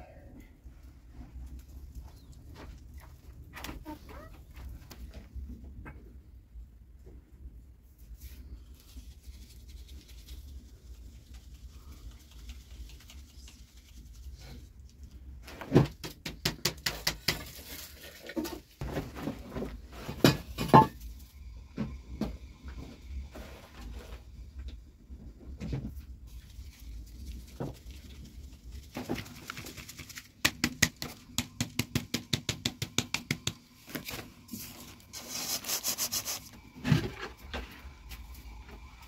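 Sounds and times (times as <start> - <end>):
flour rustling in a sieve: 7.9 - 15.7, 26.0 - 30.4, 33.8 - 36.5.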